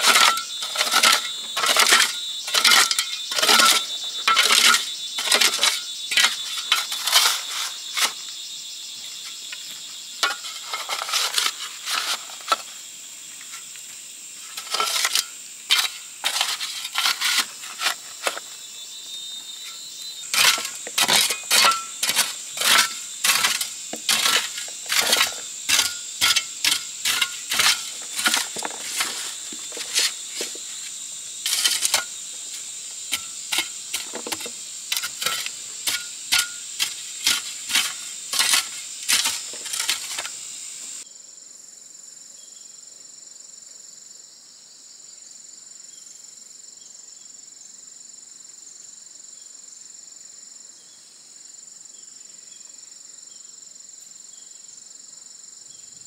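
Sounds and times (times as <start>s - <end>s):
shovel scraping into clay soil: 0.0s - 8.2s, 10.2s - 12.7s, 14.4s - 18.5s, 19.6s - 41.0s
high insect drone: 0.0s - 56.0s.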